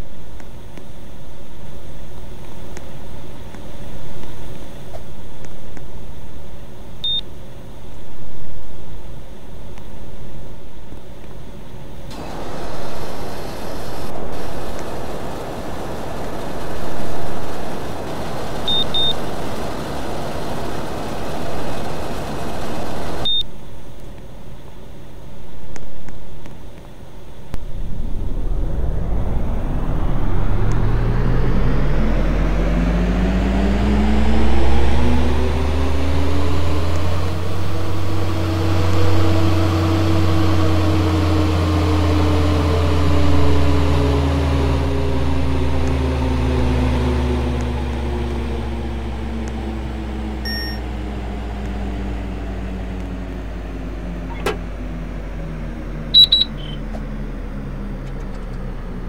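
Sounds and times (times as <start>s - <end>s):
short high beeps: 50.5s - 50.8s, 56.2s - 56.8s.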